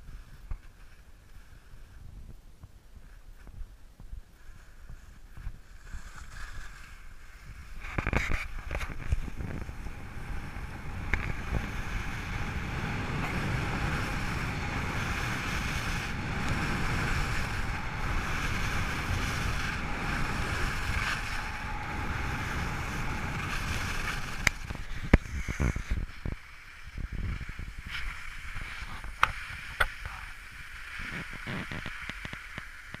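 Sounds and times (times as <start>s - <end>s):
skis scraping over snow: 0.0s - 2.0s, 4.2s - 33.0s
wind on microphone: 0.0s - 33.0s.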